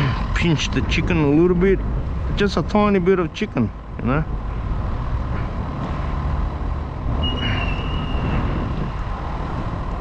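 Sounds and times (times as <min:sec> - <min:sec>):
heavy vehicle rumbling: 0:00.0 - 0:10.0
high-pitched squeal: 0:07.1 - 0:09.1.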